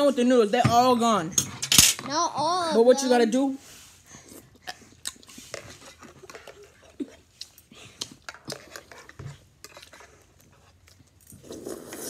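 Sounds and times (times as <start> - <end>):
slurping noodles: 3.7 - 12.0.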